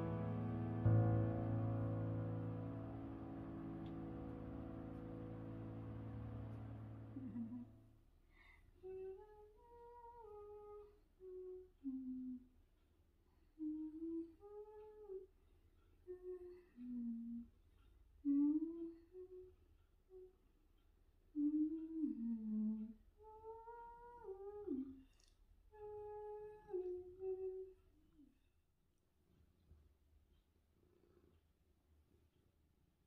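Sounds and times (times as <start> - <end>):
woman humming a slow tune: 0.0 - 7.7, 8.8 - 12.5, 13.6 - 15.3, 16.1 - 17.5, 18.2 - 20.4, 21.3 - 25.0, 25.7 - 27.8.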